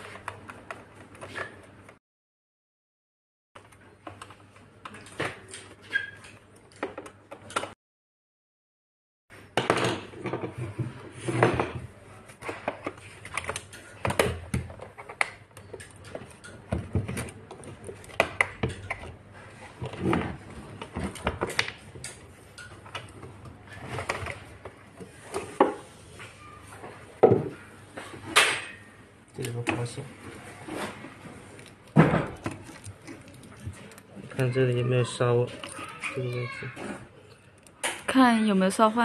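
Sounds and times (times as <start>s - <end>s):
plastic parts clicking and scraping: 29.4s - 38.1s.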